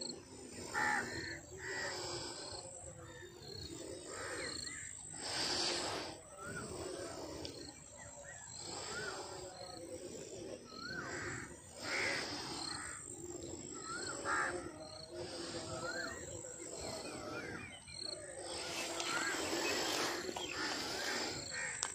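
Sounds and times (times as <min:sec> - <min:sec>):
crow-like caws: 0:00.7 - 0:02.0, 0:04.0 - 0:05.0, 0:10.9 - 0:13.1, 0:13.8 - 0:14.8, 0:18.6 - 0:21.9.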